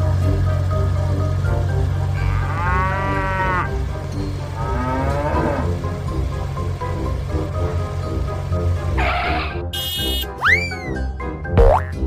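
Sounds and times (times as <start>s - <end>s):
background music: 0.0s - 12.0s
cow mooing: 2.0s - 6.0s, 9.0s - 9.6s.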